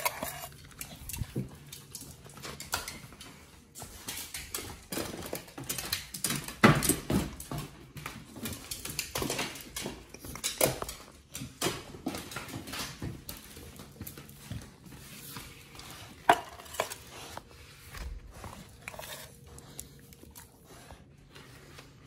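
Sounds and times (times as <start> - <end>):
dog claws clicking on tile: 0.0 - 14.6.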